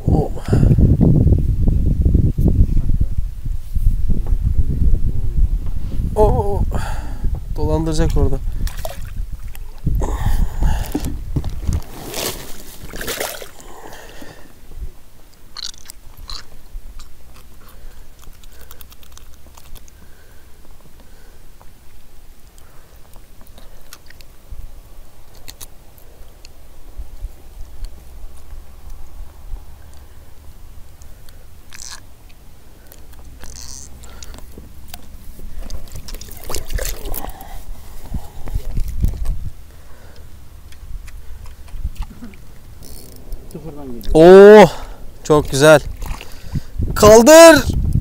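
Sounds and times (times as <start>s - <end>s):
steady low rumble: 0.0s - 47.0s
rubbing scrapes: 11.6s - 13.0s.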